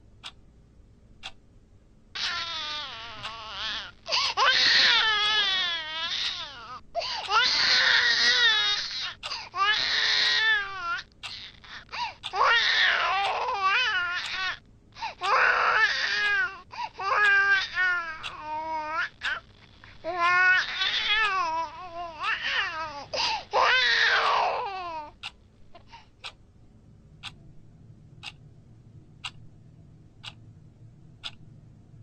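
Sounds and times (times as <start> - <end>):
baby crying: 2.2 - 14.6, 15.2 - 19.4, 20.0 - 25.2.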